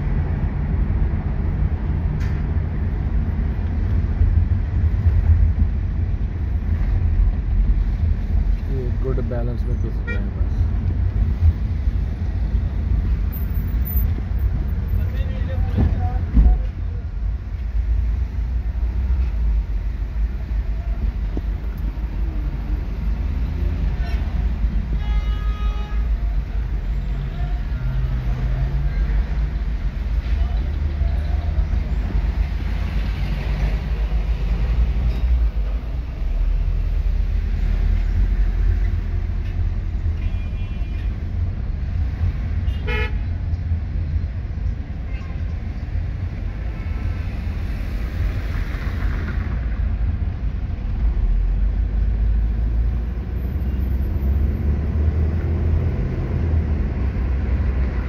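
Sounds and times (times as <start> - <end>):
car cabin road and engine rumble: 0.0 - 25.1
car horn toot: 25.0 - 26.1, 42.6 - 43.2.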